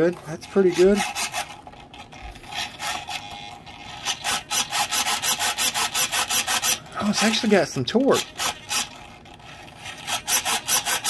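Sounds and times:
servo whirring: 0.5s - 7.4s, 8.1s - 11.0s.

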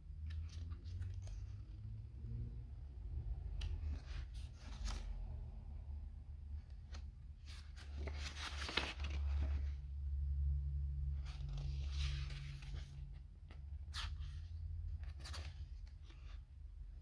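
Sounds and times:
low steady hum: 0.0s - 17.0s
paper pages rustling: 0.2s - 1.8s, 3.4s - 5.4s, 6.6s - 9.9s, 11.1s - 17.0s.

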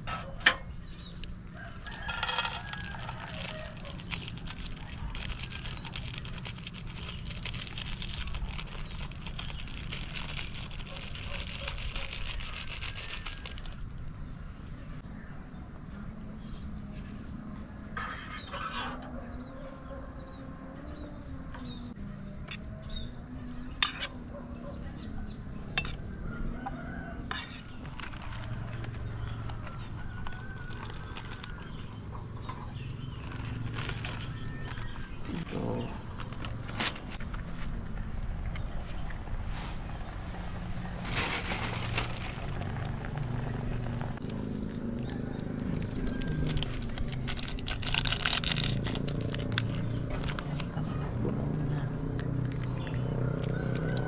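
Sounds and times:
rooster crowing: 1.4s - 4.1s, 26.1s - 32.1s, 44.9s - 47.3s, 53.2s - 54.0s.

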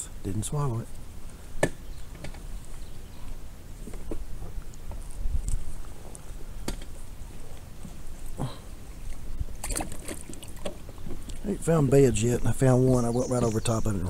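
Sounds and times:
handling knocks and clicks: 1.6s - 2.5s
wind rumble on microphone: 1.9s - 8.2s.

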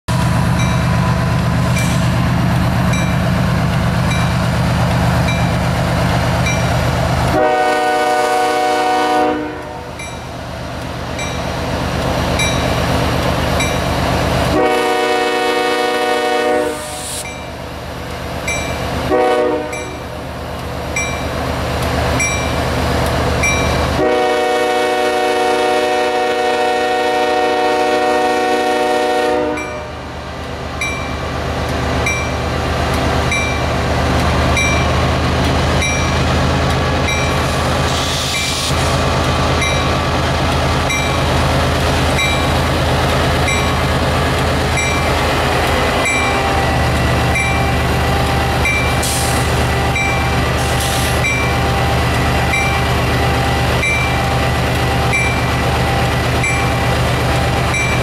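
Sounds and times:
crossing bell dinging: 0.6s - 1.1s, 2.9s - 3.4s, 9.9s - 10.3s, 11.2s - 11.6s, 12.4s - 12.8s, 18.5s - 18.9s, 19.7s - 20.1s, 21.0s - 21.4s, 22.2s - 22.6s, 29.5s - 29.9s, 32.0s - 32.4s, 33.3s - 33.7s, 34.6s - 35.0s, 35.8s - 36.3s, 37.0s - 37.5s, 39.6s - 40.0s, 40.8s - 41.3s, 42.1s - 42.6s, 43.4s - 43.9s, 44.7s - 45.2s, 45.9s - 49.0s, 49.8s - 50.4s, 51.2s - 51.9s, 52.5s - 53.0s, 53.7s - 55.6s, 56.4s - 57.0s, 57.6s - 58.0s
locomotive air horn blasts: 7.3s - 9.9s, 14.4s - 17.2s, 19.1s - 20.0s, 23.9s - 30.0s.

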